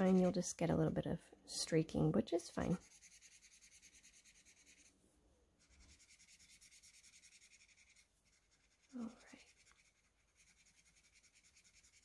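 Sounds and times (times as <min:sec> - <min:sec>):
marker scrubbing on paper: 0:00.0 - 0:00.6, 0:02.5 - 0:05.0, 0:05.6 - 0:12.0.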